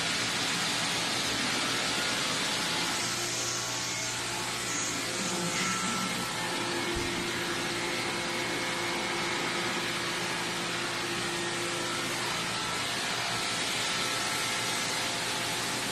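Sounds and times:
machine hissing with faint hum: 0:00.0 - 0:15.9.

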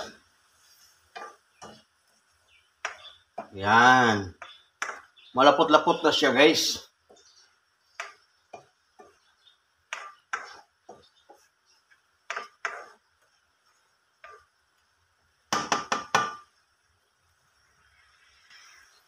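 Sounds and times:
spatula scraping wok: 0:00.0 - 0:05.3, 0:06.6 - 0:14.9, 0:17.4 - 0:19.0.

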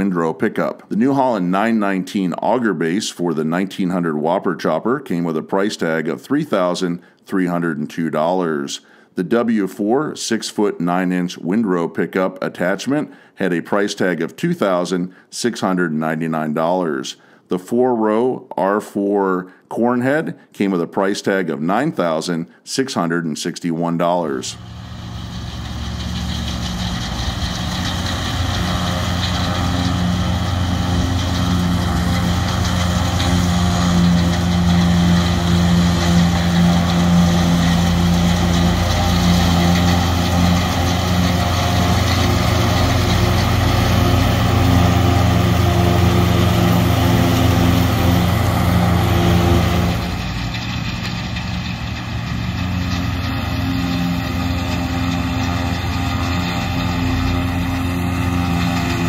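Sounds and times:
forage harvester diesel engine running: 0:24.3 - 0:59.0.

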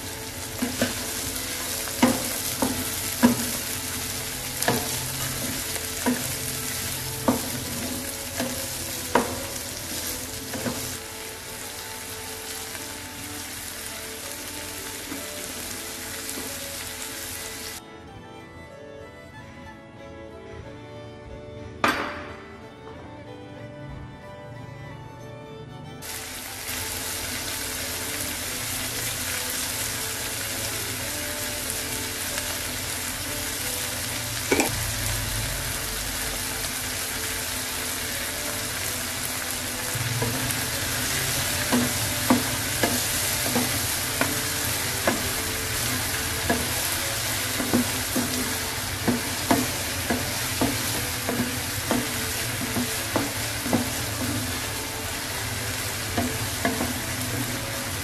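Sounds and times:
corn kernels sizzling in a pan: 0:00.0 - 0:17.8, 0:26.0 - 0:58.0
spatula knocking and scraping pan: 0:00.6 - 0:03.9, 0:04.6 - 0:11.0, 0:40.2 - 0:54.8, 0:56.0 - 0:57.7.

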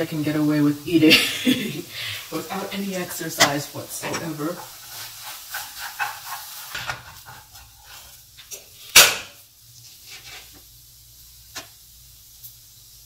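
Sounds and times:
spatula scraping in a frying pan: 0:00.3 - 0:09.0, 0:09.7 - 0:10.7.

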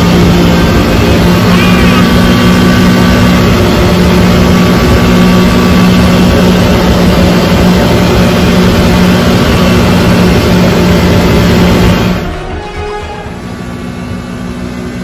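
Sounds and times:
engine running: 0:00.0 - 0:15.0.

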